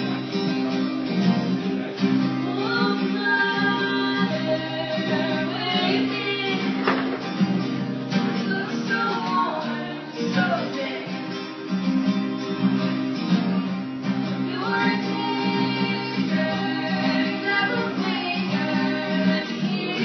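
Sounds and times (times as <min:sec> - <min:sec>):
acoustic guitars playing: 0:00.0 - 0:20.0
person singing: 0:02.0 - 0:07.2, 0:08.3 - 0:11.4, 0:14.4 - 0:20.0.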